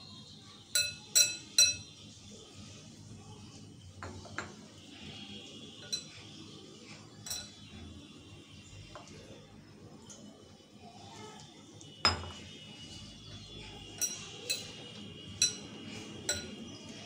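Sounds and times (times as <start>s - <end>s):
hands mixing dough: 0.0s - 17.0s
glass clinking against glass bowl: 0.8s - 1.9s, 5.8s - 6.2s, 7.2s - 7.6s, 12.0s - 12.5s, 14.0s - 14.8s, 15.4s - 15.7s, 16.3s - 16.6s.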